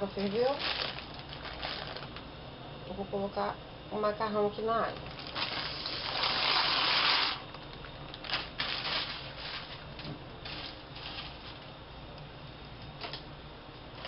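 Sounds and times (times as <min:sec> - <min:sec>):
pasta pouring into boiling water: 0:05.2 - 0:07.4.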